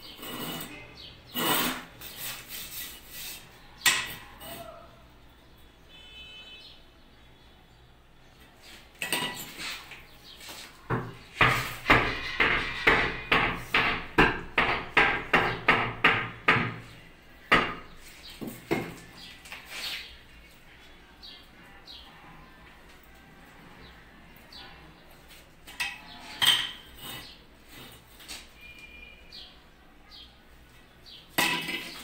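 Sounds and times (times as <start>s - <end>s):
hammer blows on masonry: 10.9s - 16.9s, 17.5s - 19.2s.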